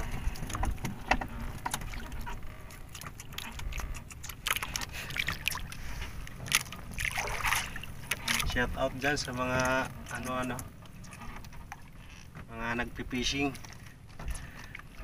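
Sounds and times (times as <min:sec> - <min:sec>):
fishing gear clicking and knocking: 0:00.0 - 0:05.6
low steady rumble: 0:00.0 - 0:15.0.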